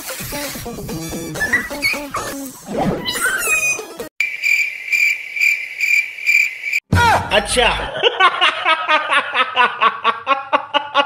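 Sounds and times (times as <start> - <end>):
music: 0.0 - 2.7.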